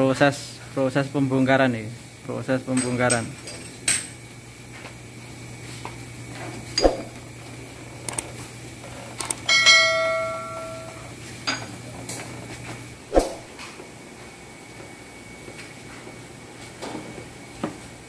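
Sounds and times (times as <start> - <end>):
low steady hum: 6.1 - 13.6
struck metal ringing: 9.5 - 11.0
metal tools clinking and knocking: 9.5 - 11.7.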